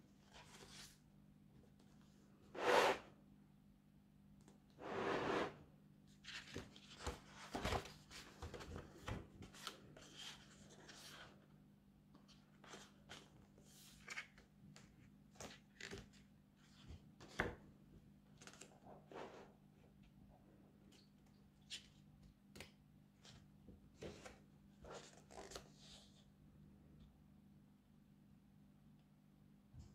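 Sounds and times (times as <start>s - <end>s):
paper pages rustling: 6.2s - 11.3s.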